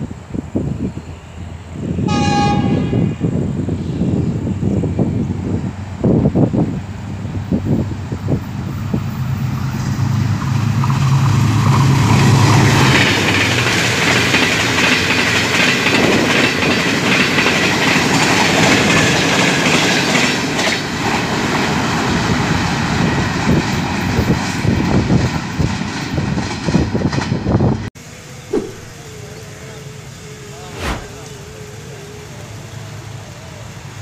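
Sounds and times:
train wheels running over track: 10.2 - 27.9
locomotive engine droning: 28.0 - 34.0.

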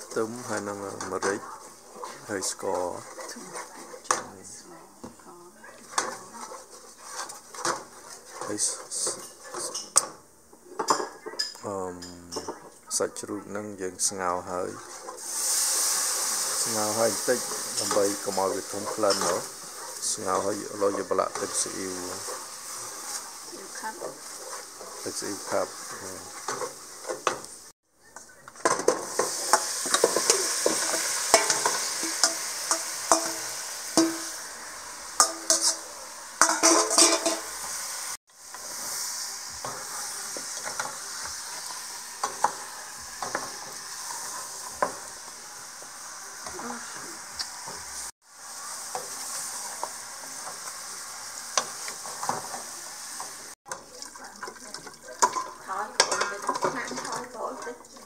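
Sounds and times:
wooden spoon scraping metal pot: 0.0 - 4.6, 5.6 - 10.1, 14.3 - 27.6, 28.3 - 34.4, 35.1 - 37.7, 38.5 - 47.9
sauce sizzling: 0.0 - 58.0.

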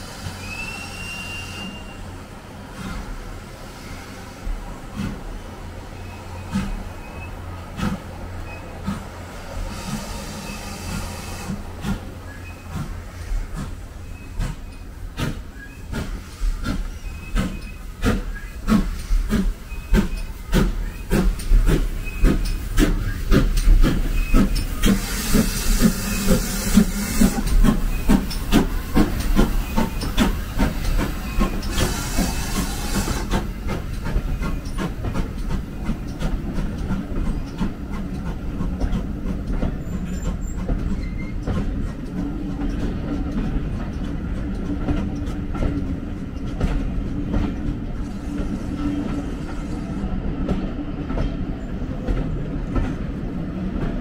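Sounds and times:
loud steam hissing: 0.0 - 44.4, 48.0 - 50.3
steam locomotive exhaust chuffs: 0.0 - 54.0.

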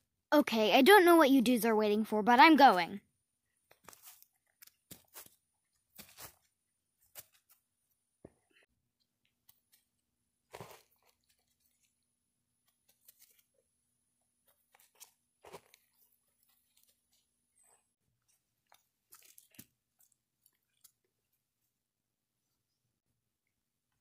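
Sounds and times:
dry grass and twigs crunching: 3.6 - 7.7, 10.5 - 12.0, 12.6 - 13.5, 14.4 - 17.3, 18.3 - 20.9.

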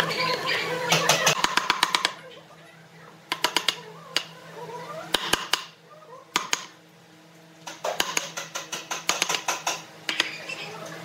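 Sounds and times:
chisel struck into wood: 7.7 - 9.8.

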